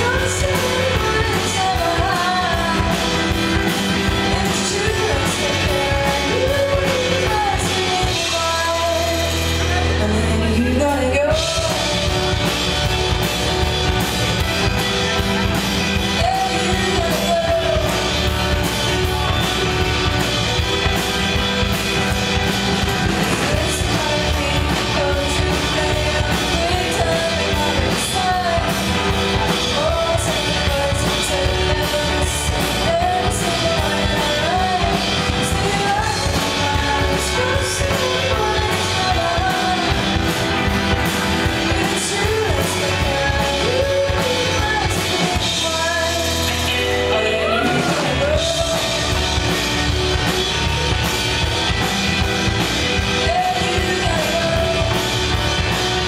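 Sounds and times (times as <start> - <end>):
woman singing lead: 0.0 - 50.7, 51.7 - 56.0
live pop band playing: 0.0 - 56.0.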